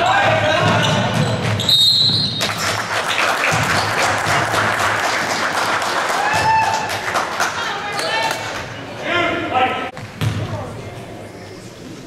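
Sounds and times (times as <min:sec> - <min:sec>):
referee's whistle: 0:00.9 - 0:02.5
crowd clapping and cheering: 0:02.3 - 0:08.7.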